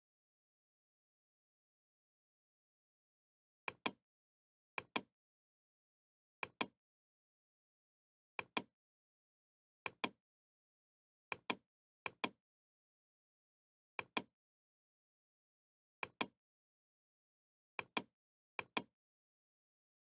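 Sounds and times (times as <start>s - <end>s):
computer mouse clicking: 3.7s - 4.0s, 11.3s - 12.4s, 16.0s - 16.3s, 17.8s - 18.9s.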